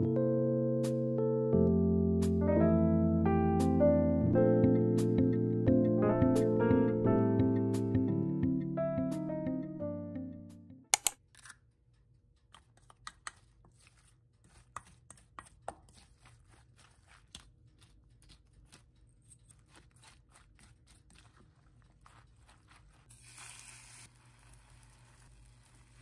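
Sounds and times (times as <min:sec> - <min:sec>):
wooden spoon mixing in metal bowl: 0:12.8 - 0:26.0.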